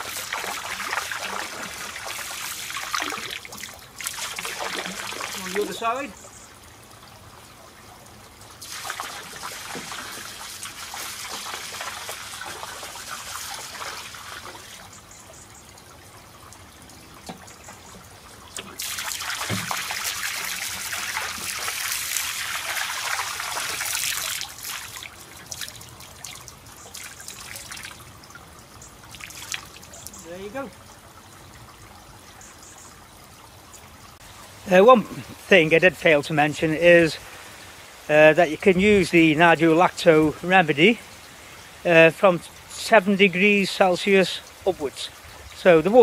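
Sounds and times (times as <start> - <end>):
water pouring into a pond: 0.0 - 46.0.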